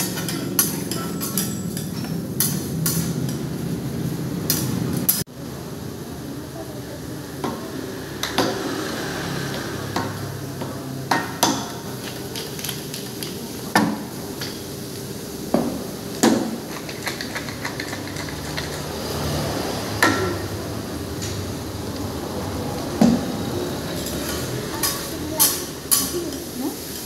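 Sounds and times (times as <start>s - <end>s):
utensils clanking on steel griddle: 0.0s - 3.6s, 4.5s - 5.3s, 16.2s - 19.1s, 20.0s - 20.6s, 23.9s - 27.0s.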